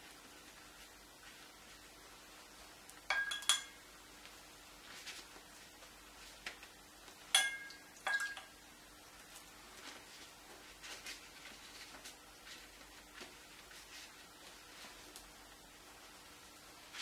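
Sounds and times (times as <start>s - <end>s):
brush swishing on paper: 0.0s - 2.6s, 9.3s - 17.0s
brush clinking on paint container: 3.1s - 3.9s, 7.3s - 8.6s.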